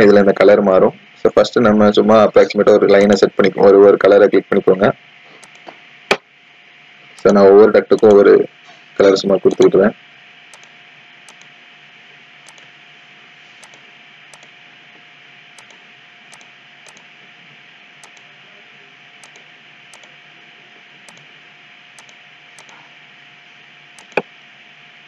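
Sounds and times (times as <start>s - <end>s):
faint hum: 0.0s - 25.0s
computer mouse clicks: 5.4s - 5.7s, 10.5s - 11.5s, 12.4s - 12.7s, 13.6s - 14.6s, 15.6s - 17.1s, 18.0s - 18.3s, 19.2s - 20.1s, 21.1s - 21.3s, 22.0s - 22.8s, 24.0s - 24.3s.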